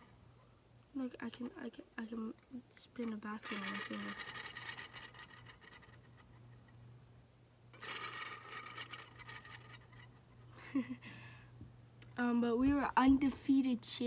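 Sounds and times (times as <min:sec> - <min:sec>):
steady low hum: 0:00.0 - 0:14.0
fast-ticking whirr of spinning toy: 0:03.0 - 0:06.5, 0:07.8 - 0:10.5.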